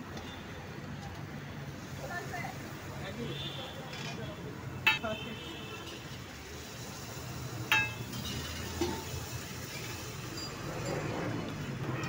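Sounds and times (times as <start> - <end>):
ladle clinking on metal cookware: 7.7 - 9.2.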